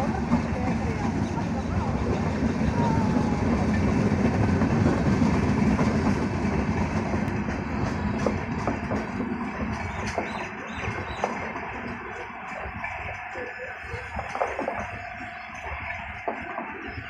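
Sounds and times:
train wheels rumbling on rail: 0.0 - 17.0
clickety-clack of wheel clicks: 4.6 - 13.3, 13.9 - 17.0.

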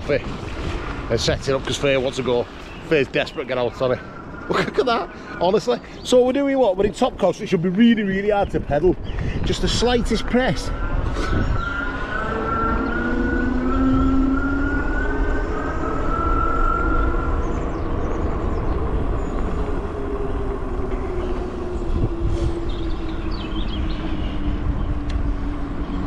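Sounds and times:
steady low rumble: 0.0 - 12.2, 14.8 - 26.0
electric bike motor whining: 10.5 - 26.0.

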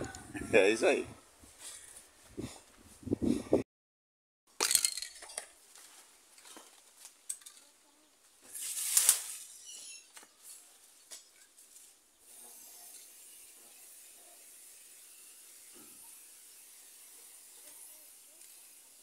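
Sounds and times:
small clicks and scrapes: 5.2 - 7.8, 17.2 - 19.0.

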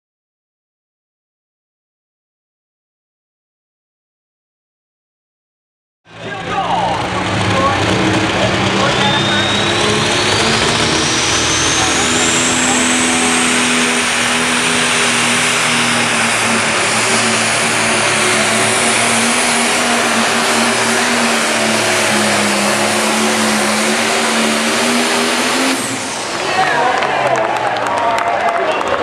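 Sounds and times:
turbocharger whine: 6.1 - 27.8
diesel engine running flat out: 6.1 - 29.0.

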